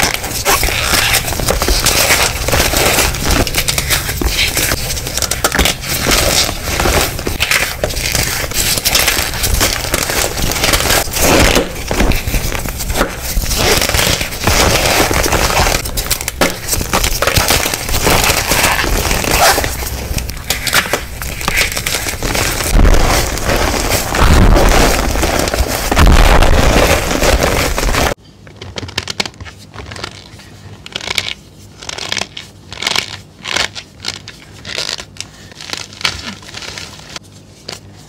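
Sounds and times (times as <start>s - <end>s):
chalk crunching and crumbling: 0.0s - 28.2s.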